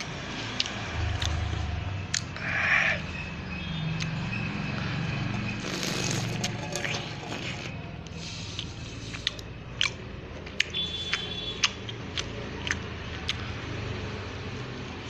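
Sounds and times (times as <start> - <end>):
wet mouth clicks eating: 0.0 - 1.5, 2.1 - 2.7, 5.6 - 13.6.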